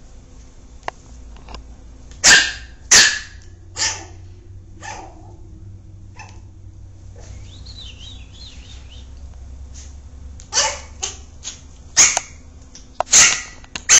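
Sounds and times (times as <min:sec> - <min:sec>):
puppy barking: 0:02.2 - 0:04.2, 0:04.8 - 0:05.4, 0:06.2 - 0:06.5, 0:10.5 - 0:12.4, 0:13.1 - 0:13.9.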